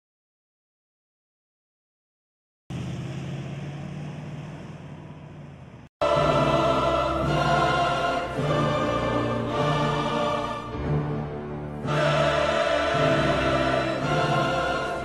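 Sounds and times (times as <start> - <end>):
dramatic choir music: 6.0 - 15.0.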